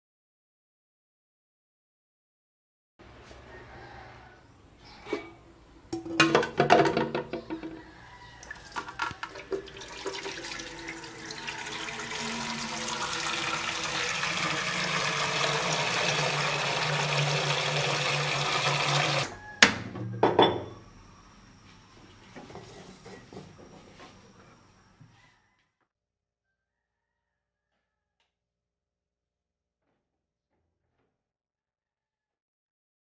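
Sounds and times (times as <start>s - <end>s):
tap water pouring into metal pot: 8.4s - 19.3s.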